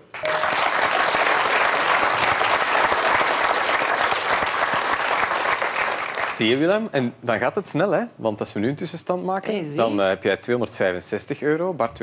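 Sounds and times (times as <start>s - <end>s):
studio audience applauding: 0.0s - 6.7s.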